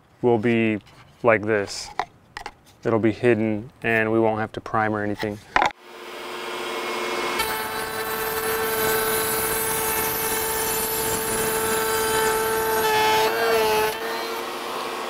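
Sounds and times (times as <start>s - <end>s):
table saw cutting wood: 5.8s - 15.0s.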